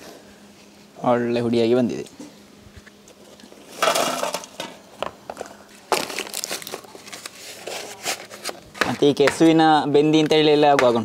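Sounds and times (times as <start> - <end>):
seed skins rustling on palm sheath: 5.7 - 9.2.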